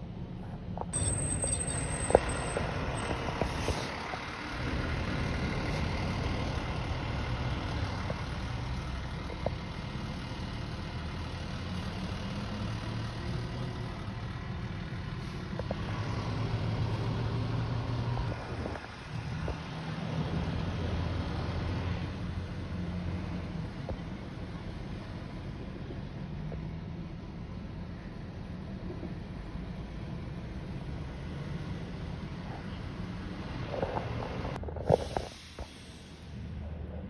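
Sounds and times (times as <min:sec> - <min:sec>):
car engine low rumble: 0:00.0 - 0:37.0.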